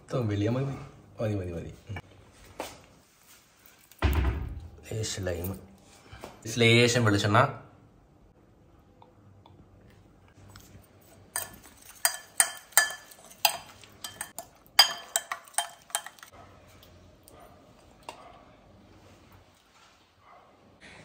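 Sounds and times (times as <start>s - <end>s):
metal spoon clinking ceramic bowl: 11.3s - 16.3s.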